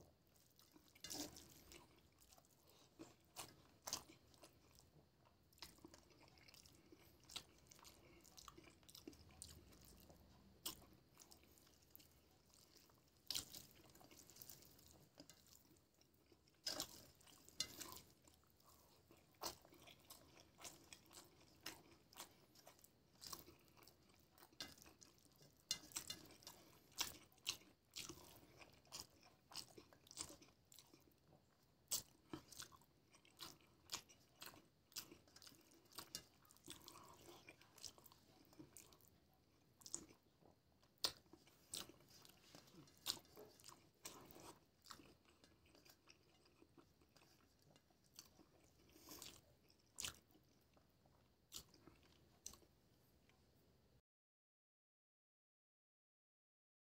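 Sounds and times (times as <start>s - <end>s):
chewing: 0.0s - 53.5s
fingers squishing food on a plate: 5.6s - 31.2s.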